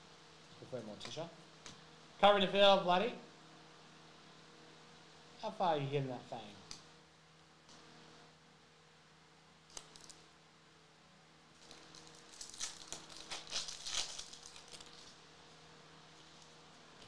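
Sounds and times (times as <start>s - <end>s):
foil wrapper crinkling and tearing: 9.7s - 10.2s, 11.6s - 15.2s.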